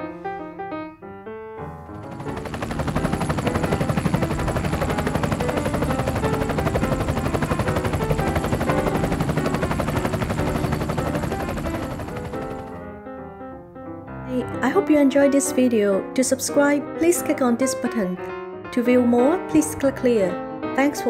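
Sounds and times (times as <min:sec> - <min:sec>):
helicopter rotor blades chopping: 0:01.8 - 0:12.9.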